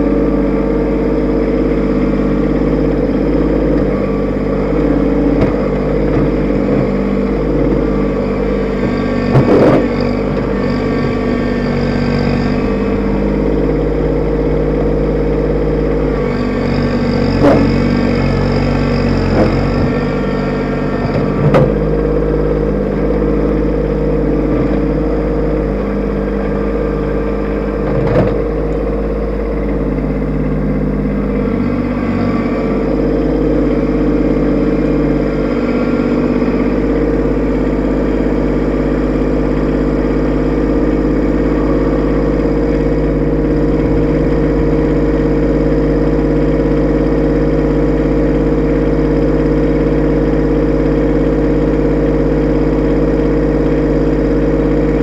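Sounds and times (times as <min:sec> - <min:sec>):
tractor diesel engine running: 0:00.0 - 0:55.0
loader bucket knocking on rock: 0:08.8 - 0:10.5, 0:21.1 - 0:21.8.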